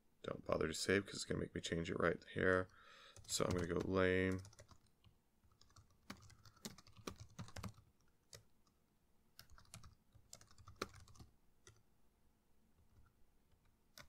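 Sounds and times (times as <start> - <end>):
typing on computer keyboard: 3.2 - 4.9, 5.5 - 8.5, 9.4 - 11.8.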